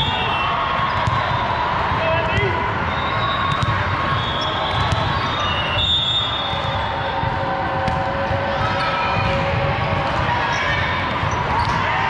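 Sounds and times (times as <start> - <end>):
crowd chatter: 0.0 - 12.0
volleyballs struck and bouncing: 0.9 - 2.8, 3.4 - 5.3, 6.5 - 12.0.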